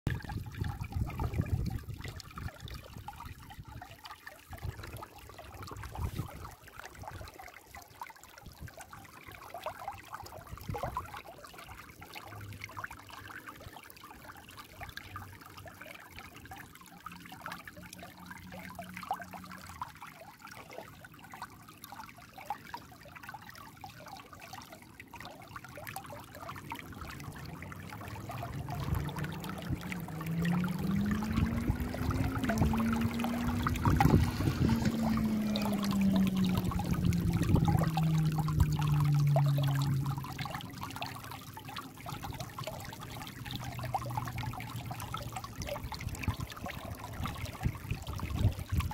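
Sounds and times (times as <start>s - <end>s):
stream trickling over stones: 0.1s - 48.9s
low rumble: 26.8s - 41.3s.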